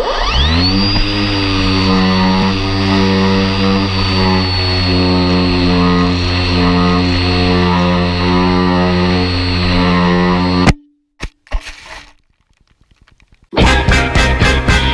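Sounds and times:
model airplane motor whine: 0.0s - 10.7s.

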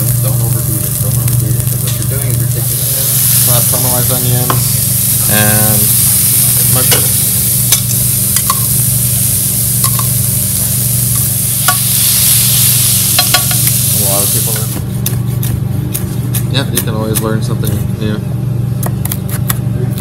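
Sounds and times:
vegetables sizzling in a pan: 0.0s - 14.8s
steady low hum: 0.0s - 20.0s.

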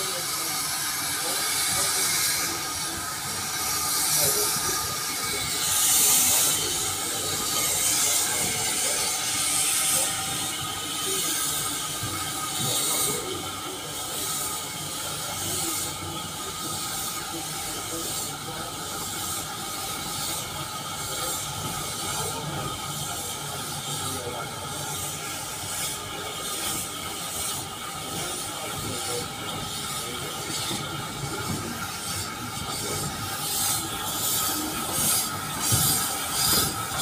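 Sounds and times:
steam hissing: 0.0s - 37.0s
steam locomotive chuffing: 0.0s - 37.0s.

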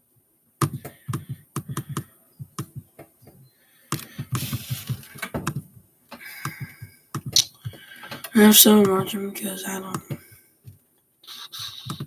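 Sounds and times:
keyboard typing: 0.6s - 2.9s, 11.3s - 12.0s.

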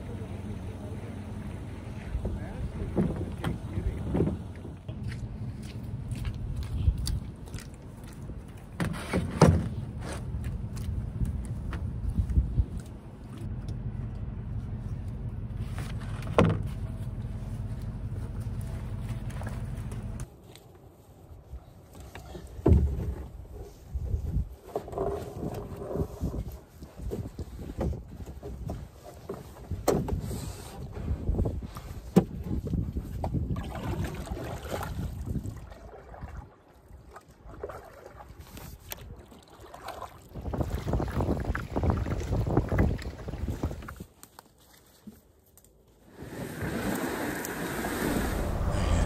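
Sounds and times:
steady low rumble: 0.0s - 8.7s, 9.8s - 20.3s, 47.9s - 49.0s
paddle splashing through water: 33.0s - 44.1s.

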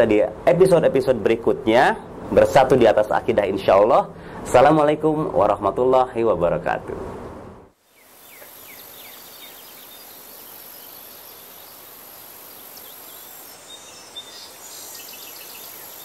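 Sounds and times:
soft hiss: 7.8s - 16.0s
high insect whine: 7.9s - 16.0s.

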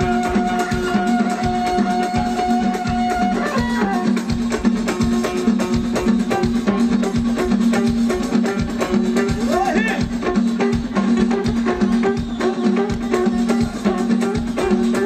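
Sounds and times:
hand drum beat: 0.0s - 15.0s.

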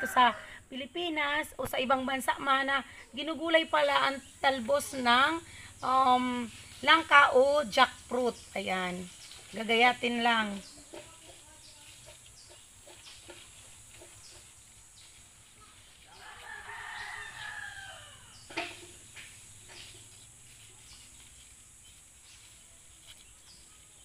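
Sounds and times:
rooster crowing: 0.0s - 0.6s, 16.0s - 18.5s.

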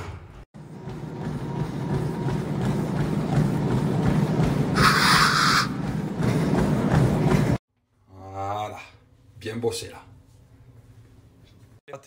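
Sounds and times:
person running on treadmill: 0.6s - 7.6s
treadmill low rumble: 0.6s - 7.6s.

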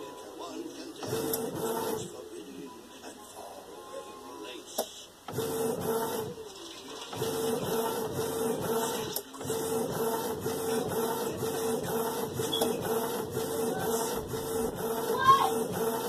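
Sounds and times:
inkjet printer printing: 0.0s - 3.6s, 4.4s - 16.0s.

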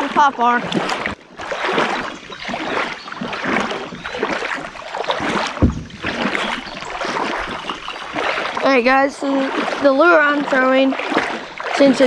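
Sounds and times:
river water sloshing and splashing: 0.0s - 12.0s
dull thump: 5.2s - 6.7s.

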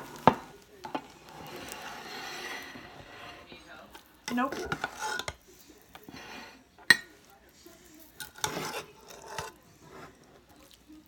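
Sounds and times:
metal spoon scraping saucepan: 0.0s - 7.3s, 8.0s - 10.5s
spoon clinking: 6.8s - 7.2s.

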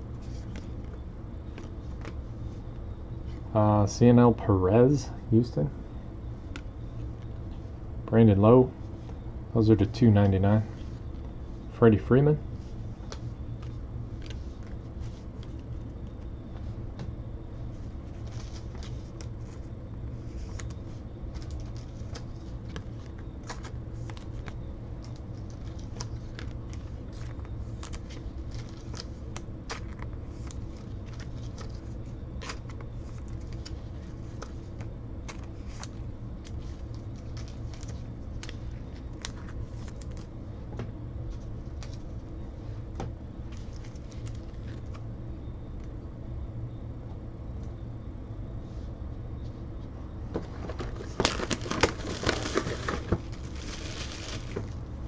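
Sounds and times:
steady low hum: 0.0s - 55.0s
trading cards flipping: 18.2s - 40.3s.

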